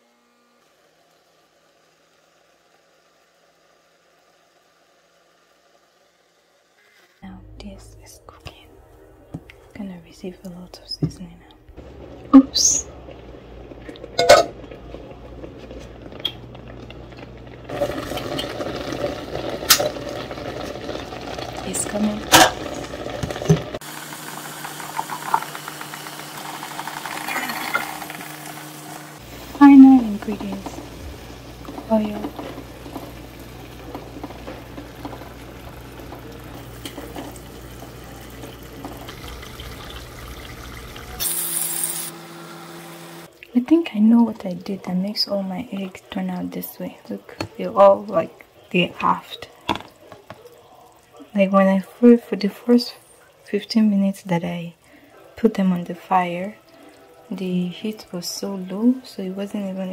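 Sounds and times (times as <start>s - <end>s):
low steady hum: 7.2s - 18.2s
sauce bubbling in a pot: 11.8s - 41.4s, 42.1s - 59.9s.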